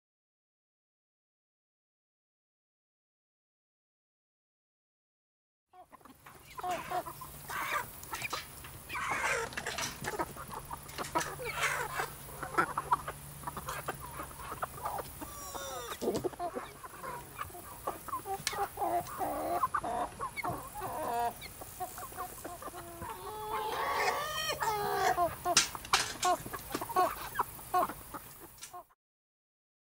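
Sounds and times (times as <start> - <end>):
hens clucking and calling: 5.8 - 28.9.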